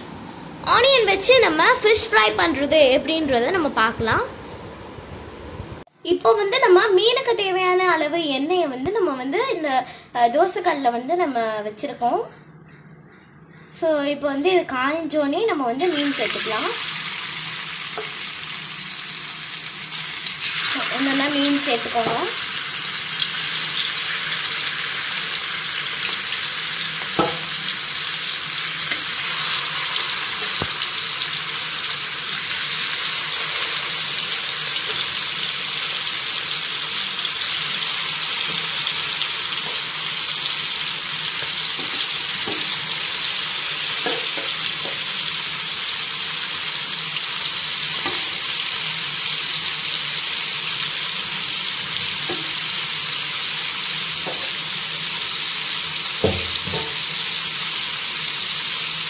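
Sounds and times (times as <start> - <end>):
fish sizzling in hot oil: 15.8 - 59.0.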